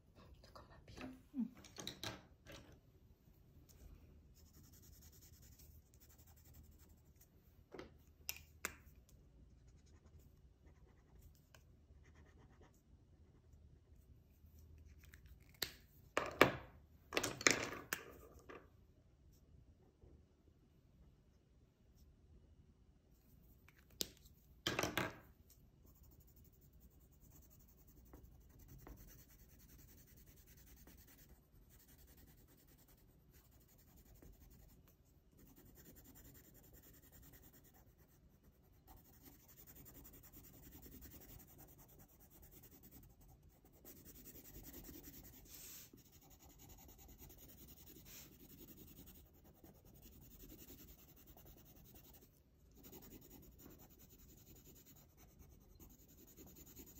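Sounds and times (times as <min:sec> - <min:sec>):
pencil scratching on paper: 0:04.4 - 0:07.2, 0:09.5 - 0:13.4, 0:25.9 - 0:56.9.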